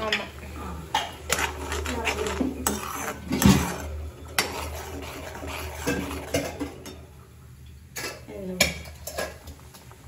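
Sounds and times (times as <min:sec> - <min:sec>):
metal spoon scraping metal pan: 0:01.0 - 0:07.0.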